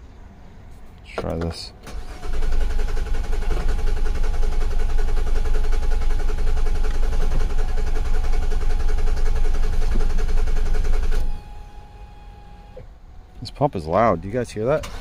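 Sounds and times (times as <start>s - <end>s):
engine cranking on starter: 1.8s - 11.3s, 14.7s - 15.0s
fuel pump whining: 1.8s - 13.0s, 14.7s - 15.0s.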